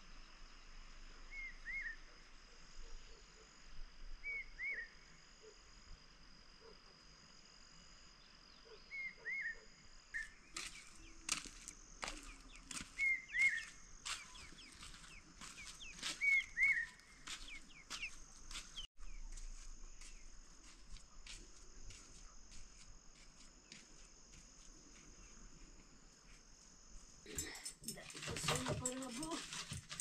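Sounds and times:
birds chirping: 0:10.2 - 0:19.3, 0:27.3 - 0:30.0.

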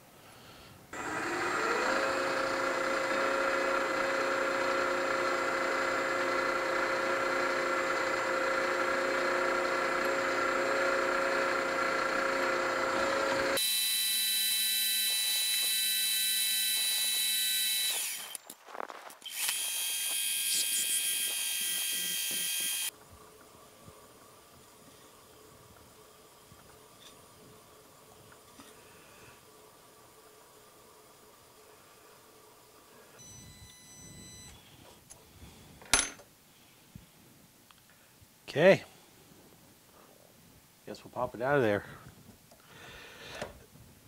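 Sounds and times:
drilling machine drilling steel: 0:01.0 - 0:18.4, 0:19.2 - 0:22.9.

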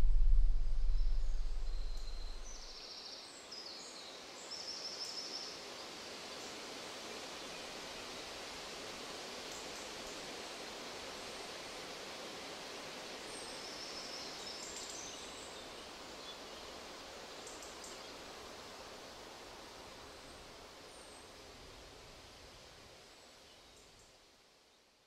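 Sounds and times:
faint bird chirps: 0:00.0 - 0:02.8
soft outdoor hiss: 0:00.0 - 0:25.0.

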